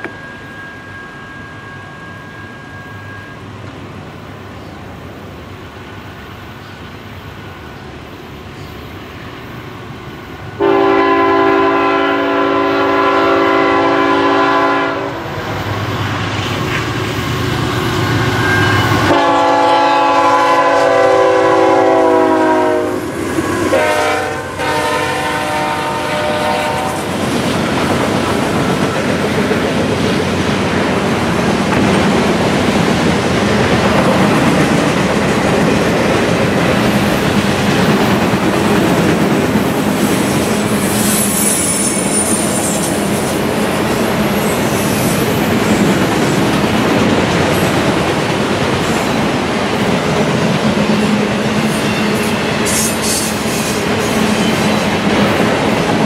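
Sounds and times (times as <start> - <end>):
train wheels rumbling: 0.0 - 56.0
locomotive air horn blasts: 10.6 - 15.3, 18.6 - 23.1, 23.7 - 27.1.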